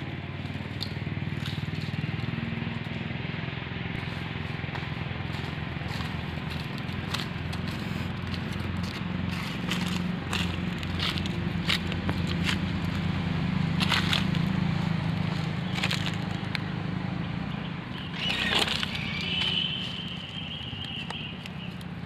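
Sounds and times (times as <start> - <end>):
low hum: 0.0 - 22.0
parrot chicks calling: 17.6 - 21.9.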